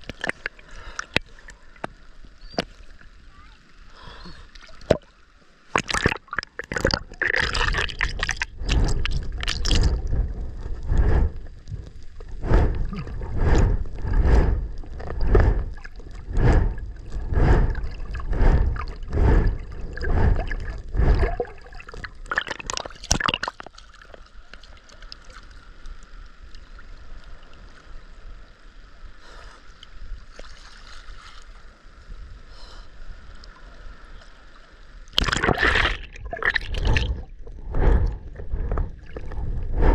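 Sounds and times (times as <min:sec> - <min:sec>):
water splashing against camera: 0:05.7 - 0:24.2, 0:35.1 - 0:39.9.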